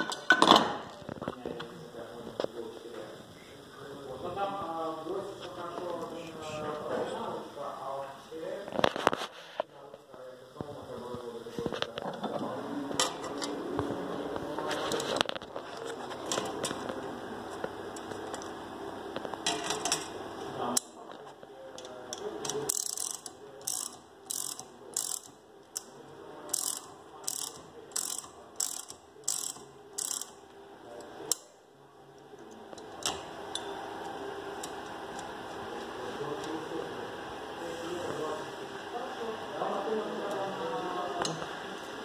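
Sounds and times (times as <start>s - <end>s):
rivet tool ratchet clicking: 22.4s - 25.9s, 26.5s - 30.4s.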